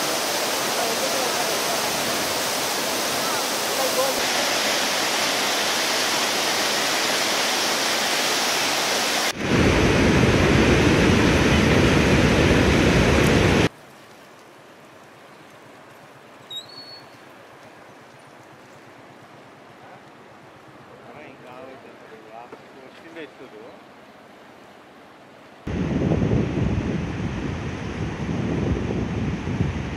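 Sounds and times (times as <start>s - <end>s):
rushing white water roar: 0.0s - 16.5s
river rushing: 0.0s - 25.8s
short high chirp: 16.5s - 17.1s.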